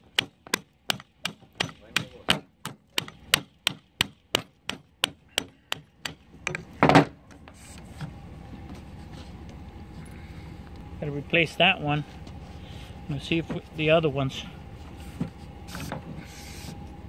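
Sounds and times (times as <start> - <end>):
hammer tapping on metal: 0.1 - 6.6.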